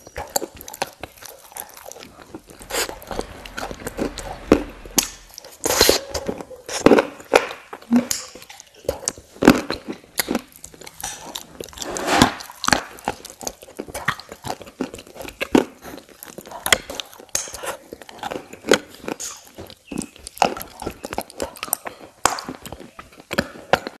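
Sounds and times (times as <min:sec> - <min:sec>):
crunching ice cream: 0:09.0 - 0:24.0.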